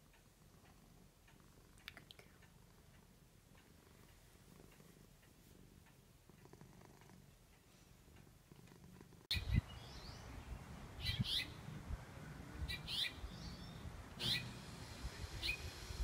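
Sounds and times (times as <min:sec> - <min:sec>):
cat purring: 0:00.0 - 0:09.3.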